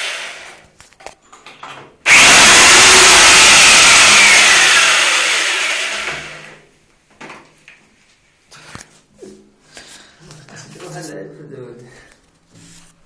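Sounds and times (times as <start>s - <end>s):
hammer drill boring into tiled wall: 0.0s - 0.6s, 2.1s - 6.6s.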